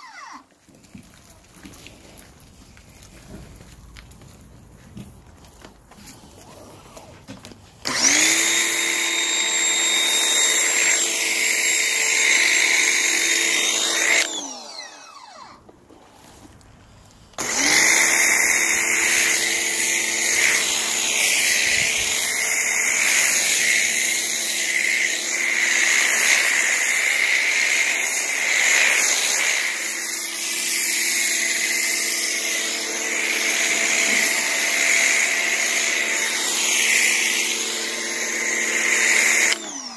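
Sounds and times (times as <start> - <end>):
pressure washer motor running: 7.8 - 15.5, 17.4 - 39.9.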